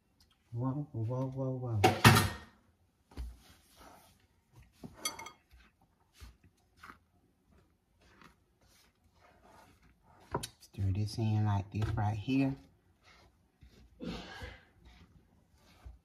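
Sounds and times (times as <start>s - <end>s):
spatula scraping glass bowl: 3.7s - 16.0s.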